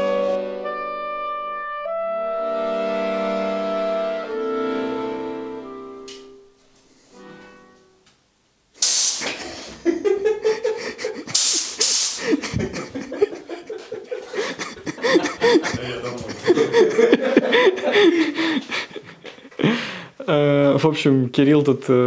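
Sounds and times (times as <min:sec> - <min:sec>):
men laughing: 0:09.2 - 0:11.6, 0:12.2 - 0:20.1.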